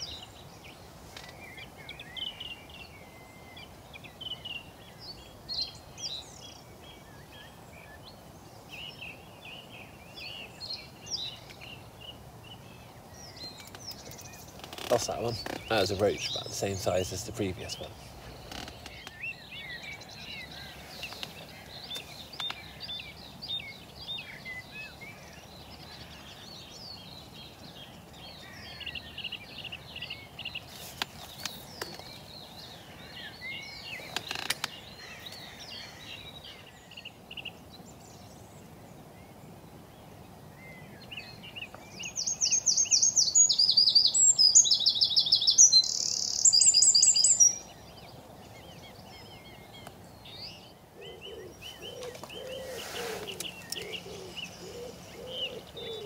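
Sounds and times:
small birds chirping: 0.0s - 56.0s
songbird trilling: 13.2s - 30.7s, 41.1s - 56.0s.

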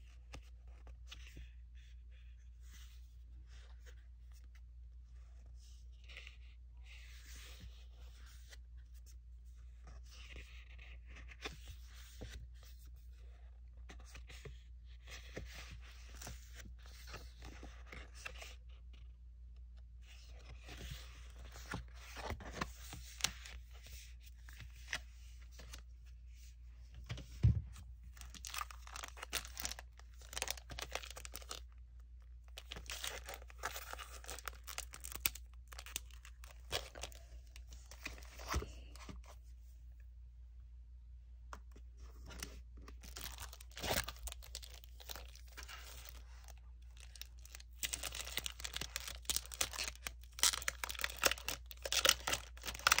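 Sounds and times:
paper and plastic sleeves rustling: 19.9s - 39.8s, 41.6s - 53.0s.

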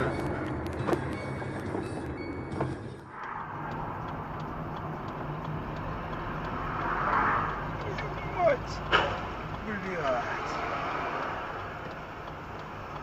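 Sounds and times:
car engine and tyre rumble: 0.0s - 13.0s
faint ticks: 3.2s - 13.0s.

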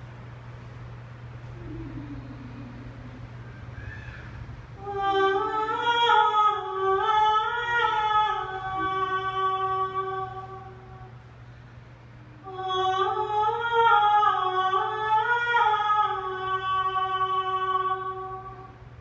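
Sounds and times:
woman singing without words: 1.5s - 3.4s, 4.8s - 11.2s, 12.2s - 18.8s.

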